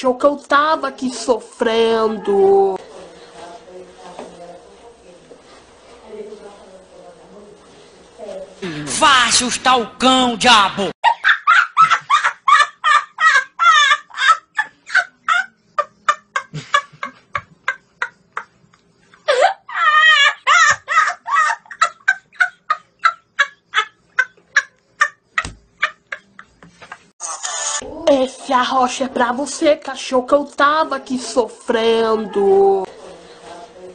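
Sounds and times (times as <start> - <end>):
boy laughing: 11.0 - 18.5, 19.2 - 27.7.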